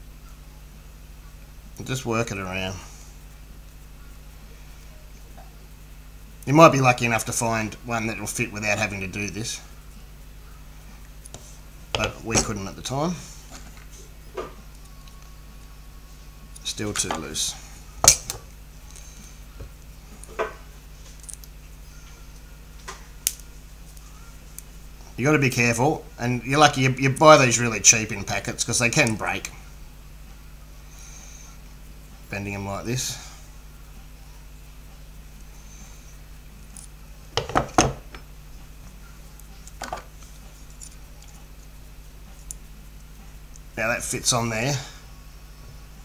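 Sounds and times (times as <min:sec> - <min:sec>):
faint low hum: 0:00.0 - 0:46.0.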